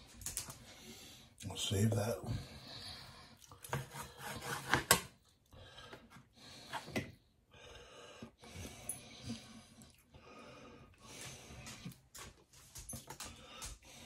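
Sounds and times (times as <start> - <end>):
knife scraping on cutting board: 3.6 - 5.1.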